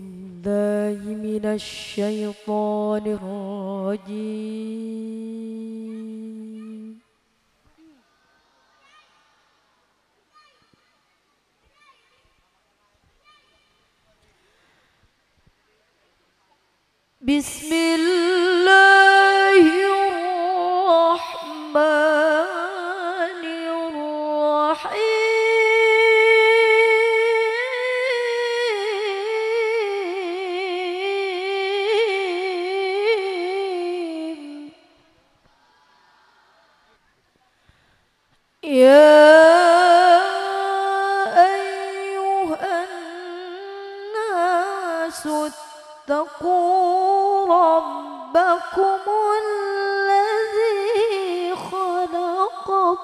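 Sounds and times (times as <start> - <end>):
woman chanting into microphone: 0.0 - 7.2, 17.2 - 35.1, 38.6 - 53.0
woman reciting melodically: 0.0 - 8.0, 16.7 - 35.2, 38.6 - 53.0
woman breathing: 14.3 - 15.2, 37.5 - 38.2.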